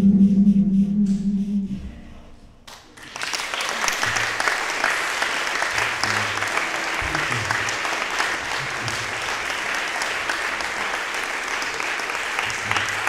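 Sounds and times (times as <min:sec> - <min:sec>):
audience applauding: 0:02.7 - 0:13.0.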